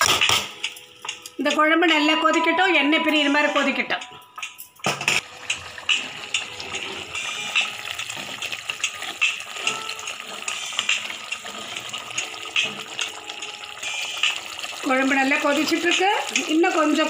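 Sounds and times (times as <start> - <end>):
ladle stirring: 5.2 - 17.0
thick gravy bubbling and popping: 5.2 - 17.0.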